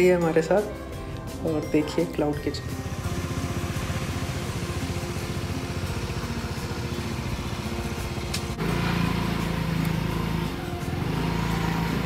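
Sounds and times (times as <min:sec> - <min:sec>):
scooter engine idling: 0:02.5 - 0:12.0.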